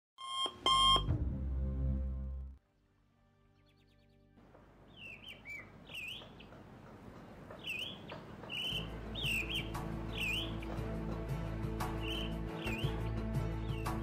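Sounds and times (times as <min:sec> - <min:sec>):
soft music with low notes: 0:00.7 - 0:05.2, 0:08.6 - 0:14.0
bird chirping: 0:03.6 - 0:14.0.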